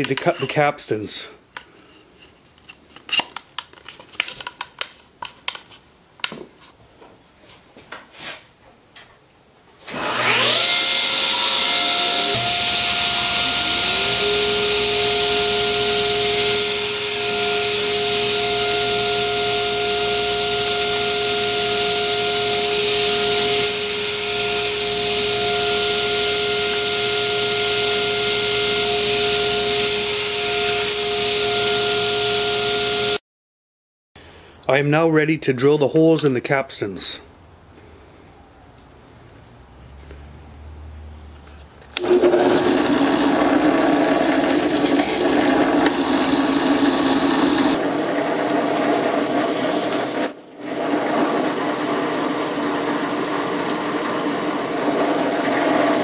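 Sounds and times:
table saw motor whine: 0:09.9 - 0:33.2, 0:42.0 - 0:56.0.

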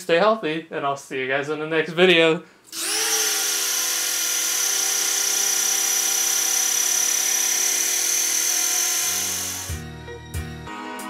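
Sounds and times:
propeller motor whirring: 0:02.7 - 0:09.8.

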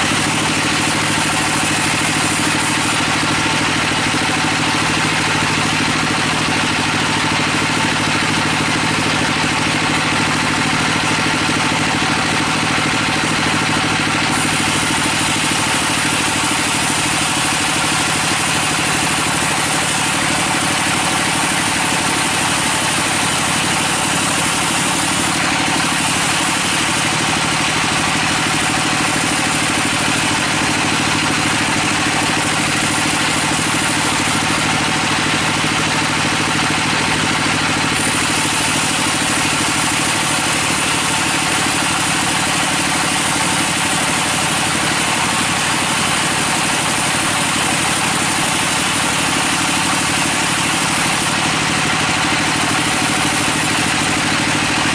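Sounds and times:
saw blade hissing through wood: 0:00.0 - 0:05.8, 0:13.2 - 0:35.6, 0:37.4 - 0:52.0
bandsaw machine hum: 0:00.0 - 0:54.9.

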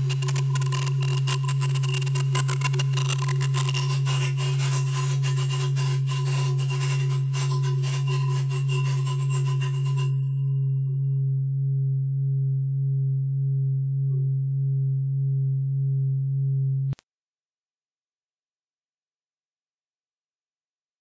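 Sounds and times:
low electronic drone: 0:00.0 - 0:17.0
shimmering high tone: 0:05.9 - 0:11.2.

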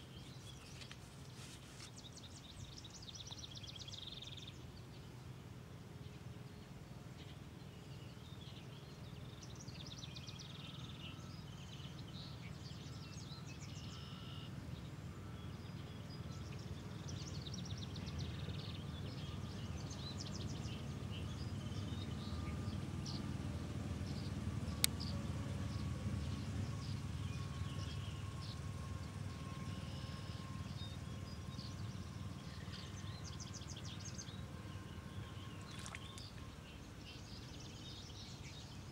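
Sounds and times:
small birds chirping and trilling: 0:29.4 - 0:38.9.

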